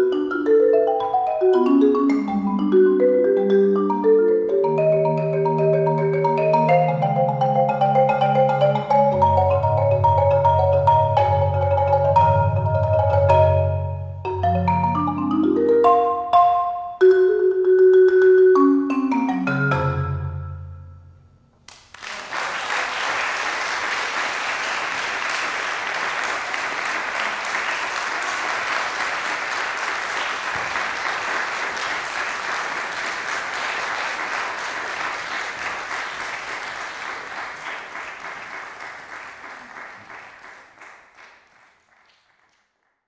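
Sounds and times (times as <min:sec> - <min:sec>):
audience applauding: 0:21.7 - 0:42.8.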